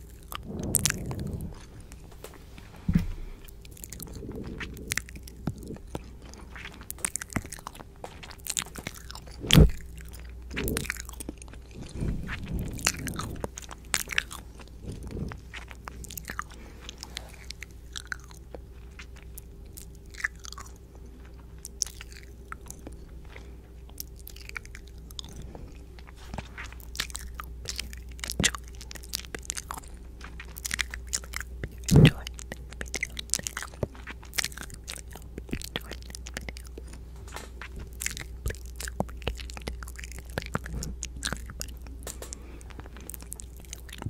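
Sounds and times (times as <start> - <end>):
faint microphone hum: 0.0 - 44.0
wet mouth clicks and smacks: 26.8 - 37.0, 37.6 - 44.0.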